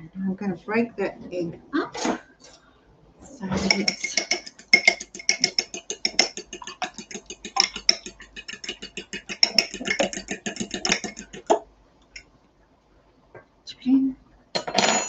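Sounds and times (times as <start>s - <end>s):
spoon clinking against ceramic bowl: 3.6s - 11.6s.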